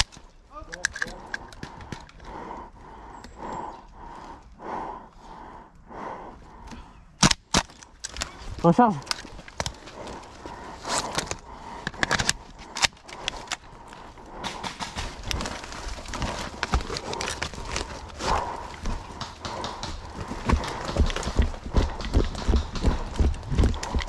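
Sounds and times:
rifle clicks and knocks: 0.0 - 2.3, 18.5 - 24.0.

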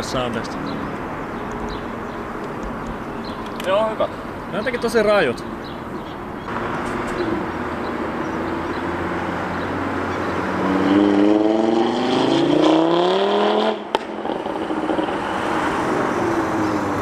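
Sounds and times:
car engine accelerating past: 6.5 - 17.0.

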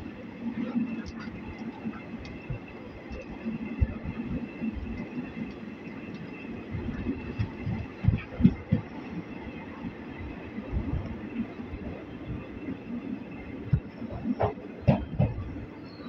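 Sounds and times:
train rumble: 0.0 - 16.0
train thumps: 6.8 - 9.0, 13.7 - 15.6.

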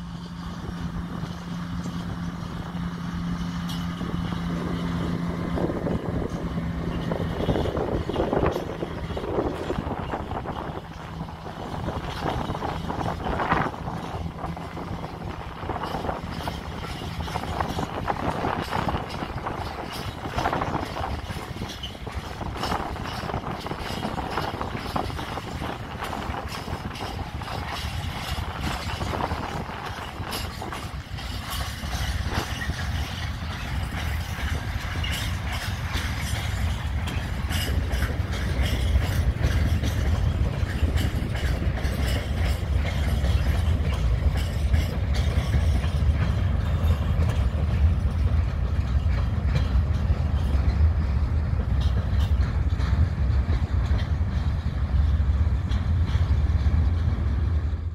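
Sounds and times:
train wheels clattering: 0.0 - 57.9.

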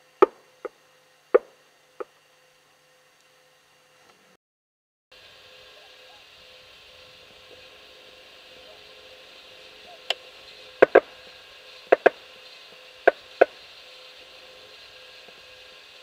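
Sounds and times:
geese honking: 8.5 - 14.4.

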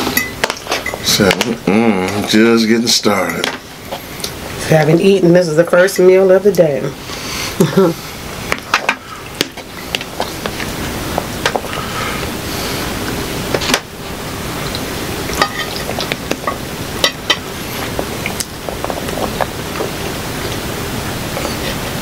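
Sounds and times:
steady background hiss: 0.0 - 22.0
metal utensils clinking in a pan: 15.4 - 15.9.

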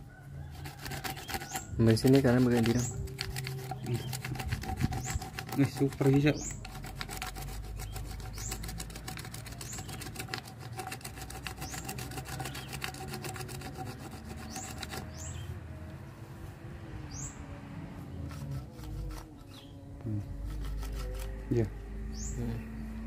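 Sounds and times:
fast ticking: 0.7 - 15.1
bird chirps: 7.8 - 8.8, 9.5 - 10.3, 14.4 - 15.6, 22.0 - 22.8.

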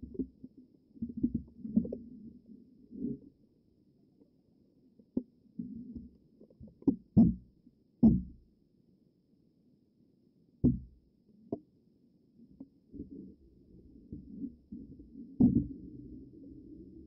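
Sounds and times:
muffled underwater thumps: 6.8 - 8.4, 10.6 - 11.0, 15.4 - 15.8.

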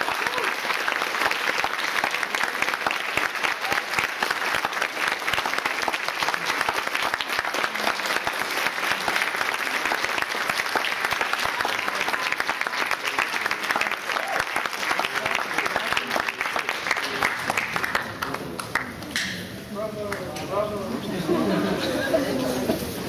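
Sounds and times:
audience applauding: 0.0 - 19.2.

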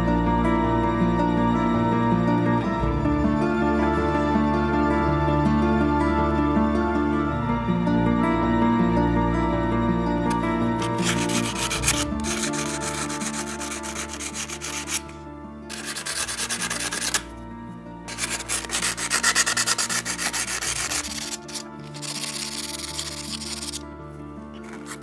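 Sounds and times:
stone scraping on sandpaper: 10.3 - 17.3, 18.1 - 23.8, 24.6 - 25.0.

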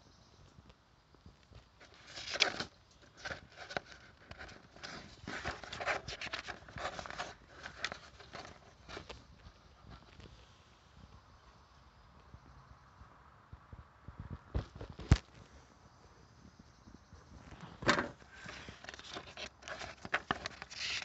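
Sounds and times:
paper pages rustling: 1.8 - 9.2, 17.8 - 21.0.

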